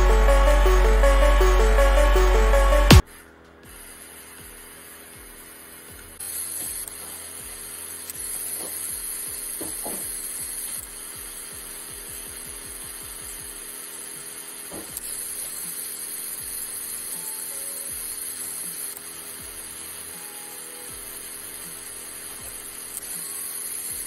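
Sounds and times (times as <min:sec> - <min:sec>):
small gear motor whirring: 0:03.1 - 0:24.0.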